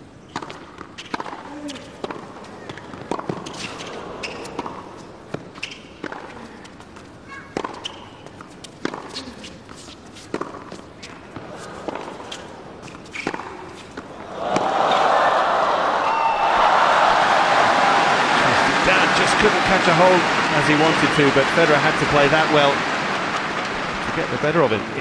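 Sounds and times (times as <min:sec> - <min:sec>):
rackets hitting tennis ball: 0:00.2 - 0:15.1
crowd applause and cheering: 0:14.2 - 0:25.0.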